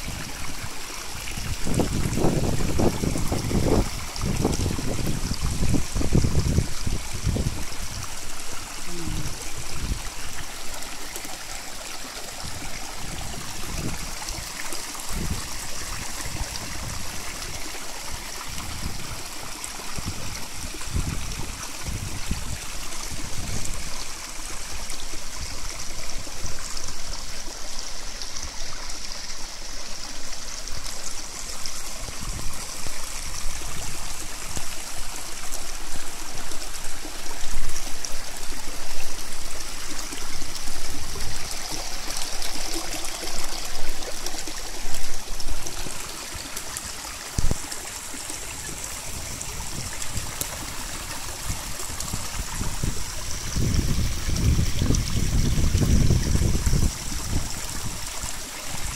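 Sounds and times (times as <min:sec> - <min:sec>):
wind buffeting microphone: 0:00.0 - 0:10.4, 0:12.4 - 0:24.0, 0:31.9 - 0:34.8, 0:44.5 - 0:58.9
waterfall rushing: 0:00.0 - 0:21.0.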